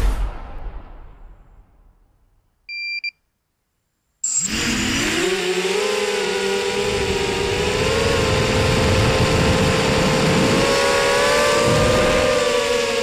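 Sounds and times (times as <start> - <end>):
quadcopter motors buzzing: 4.2 - 13.0.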